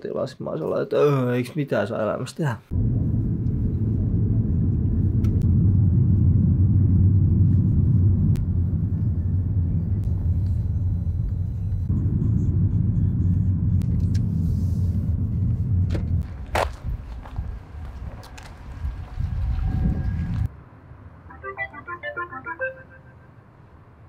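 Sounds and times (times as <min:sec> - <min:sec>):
car interior engine and road rumble: 0:02.8 - 0:20.7.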